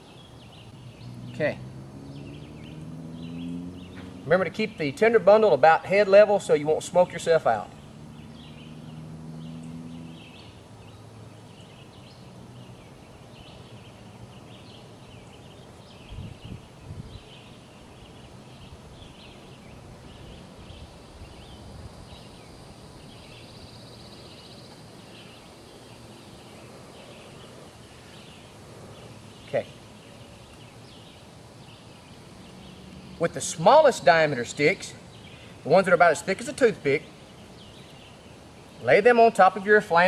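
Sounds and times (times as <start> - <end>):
high chirping: 0.0 - 5.1.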